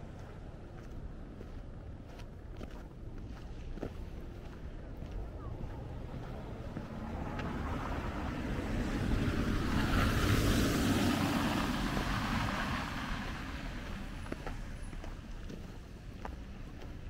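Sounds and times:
car driving past on wet street: 0:05.8 - 0:17.0.

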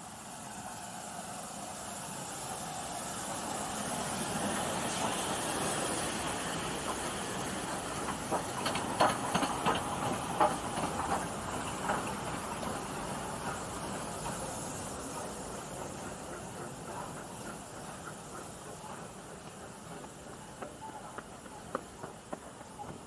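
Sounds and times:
steam locomotives hissing: 0:00.0 - 0:23.0.

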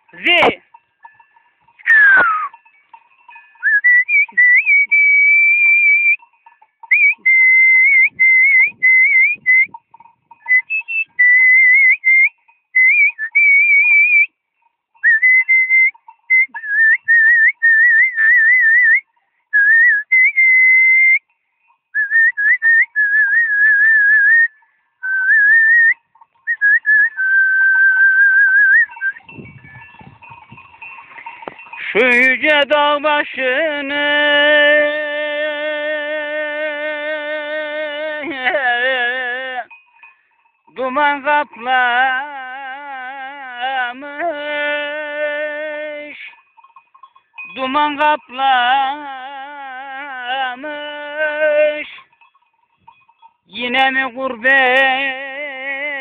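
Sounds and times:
person whistling a tune: 0:01.9 - 0:02.6, 0:03.6 - 0:06.2, 0:06.9 - 0:09.8, 0:10.5 - 0:14.4, 0:15.0 - 0:21.3, 0:22.0 - 0:29.3.

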